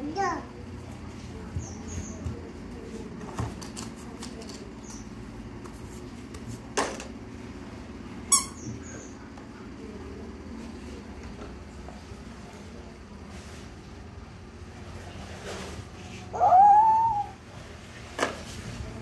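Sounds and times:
short squeak: 0:08.3 - 0:08.9.

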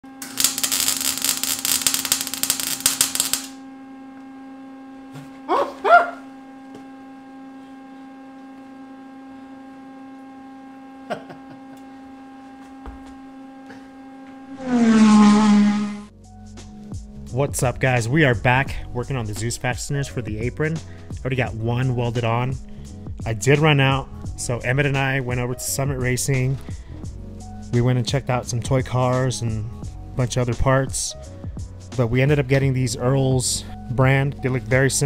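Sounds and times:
welding arc crackling: 0:00.0 - 0:03.6
loud pitched sound: 0:00.0 - 0:03.7, 0:14.4 - 0:16.1
electrical hum: 0:00.0 - 0:35.0.

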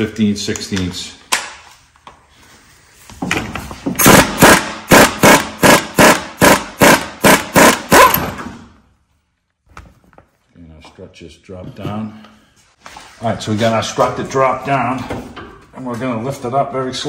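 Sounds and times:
pneumatic impact wrench rattling: 0:03.9 - 0:08.6.

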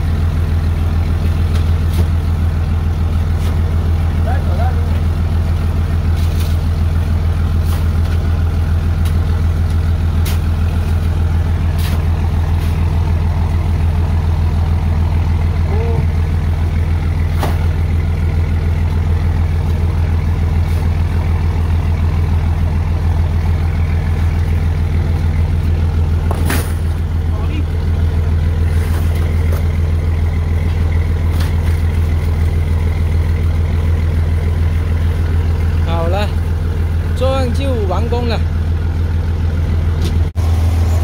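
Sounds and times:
boat engine running: 0:00.0 - 0:41.0.

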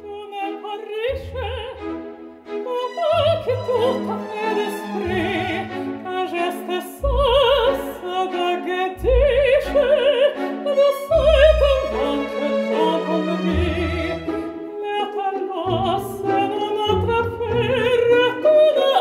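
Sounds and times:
operatic singing with vibrato: 0:00.0 - 0:19.0
orchestral accompaniment: 0:00.0 - 0:19.0.

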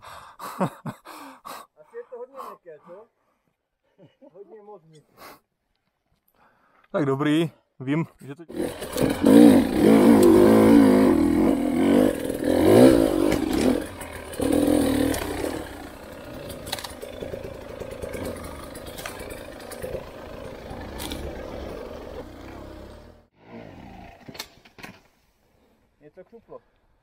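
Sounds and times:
motorcycle engine revving: 0:08.5 - 0:24.3.

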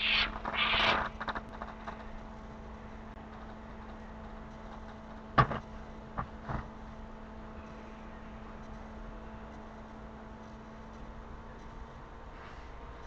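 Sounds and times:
faint hiss: 0:00.0 - 0:01.3
electrical hum: 0:00.0 - 0:13.0.

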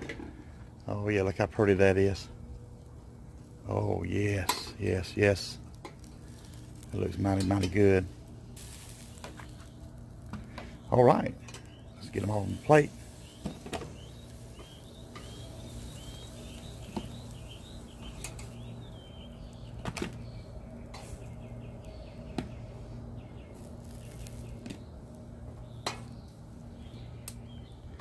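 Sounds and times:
low hum: 0:00.0 - 0:28.0
birds chirping faintly: 0:00.5 - 0:28.0
metal tongs clicking on grill grate: 0:11.4 - 0:11.7, 0:18.2 - 0:18.6.

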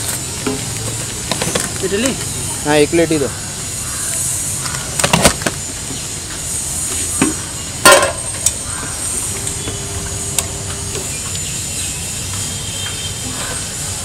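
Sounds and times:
street traffic rumble: 0:00.0 - 0:14.0
steel containers clinking: 0:07.8 - 0:08.4.

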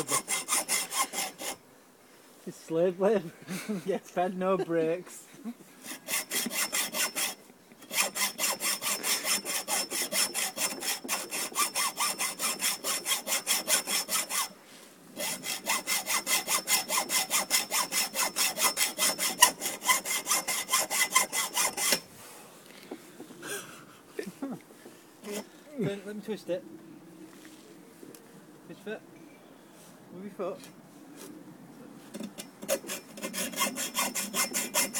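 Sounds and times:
hacksaw cutting metal: 0:00.0 - 0:01.6, 0:05.8 - 0:14.5, 0:15.2 - 0:22.1, 0:25.2 - 0:25.5, 0:32.2 - 0:34.9.

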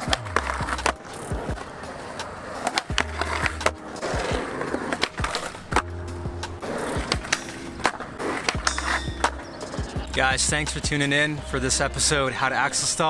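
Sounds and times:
music with beat and deep bass: 0:00.0 - 0:02.2, 0:05.2 - 0:07.3, 0:08.6 - 0:13.0
skateboard rolling on concrete: 0:00.0 - 0:13.0.

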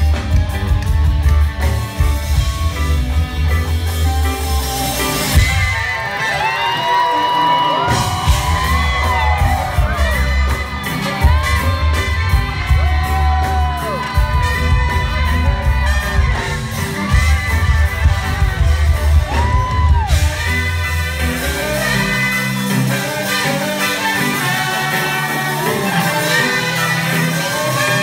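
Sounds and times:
crowd cheering and whooping: 0:00.0 - 0:28.0
live reggae band playing: 0:00.0 - 0:28.0
heavy pulsing bass line: 0:07.9 - 0:22.9.

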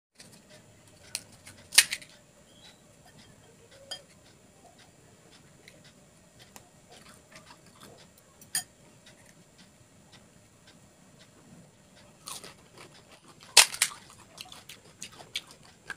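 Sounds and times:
crisp shells cracking: 0:13.2 - 0:14.2.

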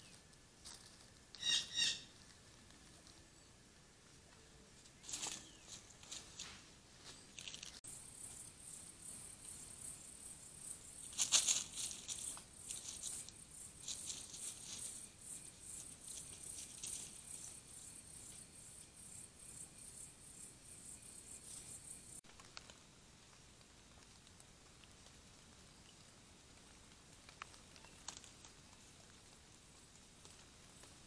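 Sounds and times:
night insects trilling: 0:07.3 - 0:22.2.

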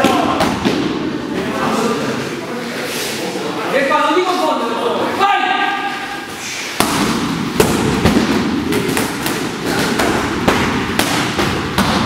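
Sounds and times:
punches and kicks smacking pads: 0:06.8 - 0:12.0.

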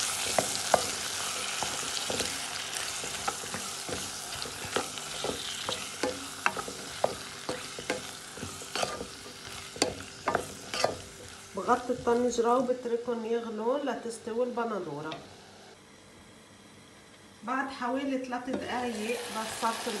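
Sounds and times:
spatula scraping pan: 0:00.0 - 0:12.4
vegetables sizzling in oil: 0:00.0 - 0:12.9, 0:18.6 - 0:20.0.

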